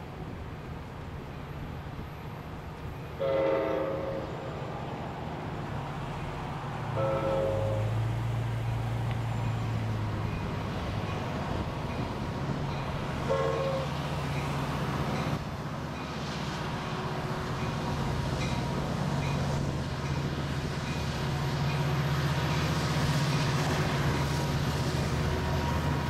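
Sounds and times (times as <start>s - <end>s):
outdoor noise: 0.0s - 26.0s
train diesel hum: 0.0s - 26.0s
train horn: 3.2s - 4.5s, 6.9s - 8.0s, 13.2s - 14.1s.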